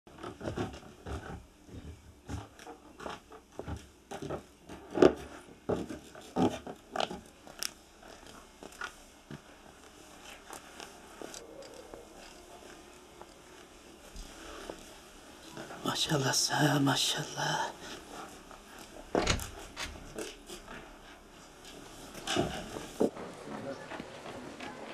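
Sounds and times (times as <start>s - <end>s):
objects being handled: 0.2s - 15.8s
footsteps indoors: 0.2s - 24.9s.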